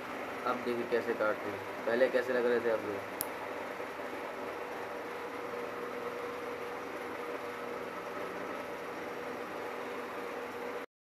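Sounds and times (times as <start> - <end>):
electric fan whooshing: 0.0 - 10.9
faint hum: 0.0 - 10.9.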